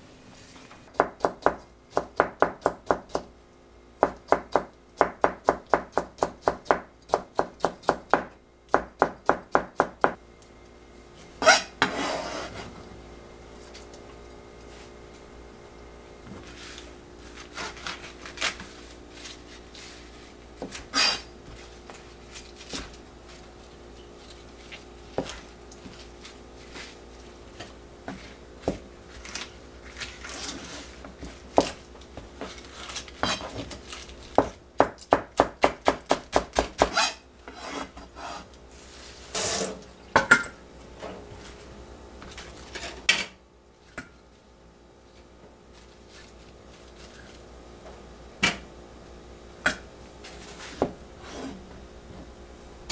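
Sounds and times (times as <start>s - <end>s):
knife chopping lettuce on board: 32.4s - 37.9s.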